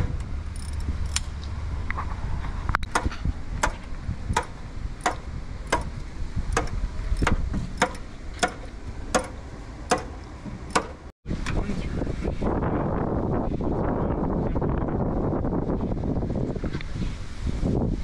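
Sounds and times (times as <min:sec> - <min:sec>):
mechanical clicking: 0:00.0 - 0:01.5, 0:02.8 - 0:11.0
low rumble: 0:00.0 - 0:16.5.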